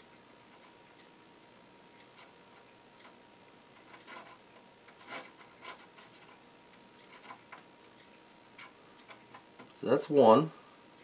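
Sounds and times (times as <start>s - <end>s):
drill bit scraping circuit board: 3.7s - 6.4s.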